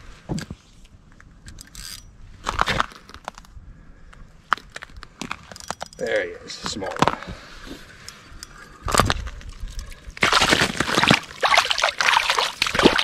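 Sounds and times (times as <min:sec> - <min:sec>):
fish splashing in water: 0:10.2 - 0:13.0.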